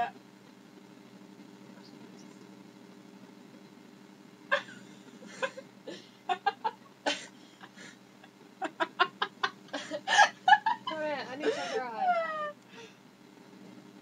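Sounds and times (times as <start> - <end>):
girls laughing: 4.5 - 5.6, 6.3 - 12.6.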